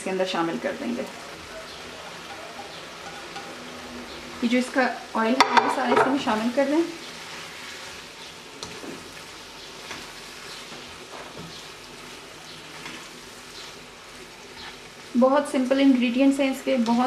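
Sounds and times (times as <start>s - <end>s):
food sizzling in oil: 0.0s - 17.0s
spoon scraping a pan: 1.5s - 3.9s.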